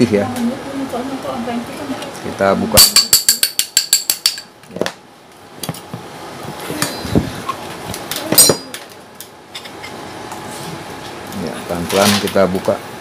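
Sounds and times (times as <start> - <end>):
metal blade tapping metal casing: 2.8 - 4.5, 8.3 - 8.8
metal knocks and clinks: 8.3 - 8.8.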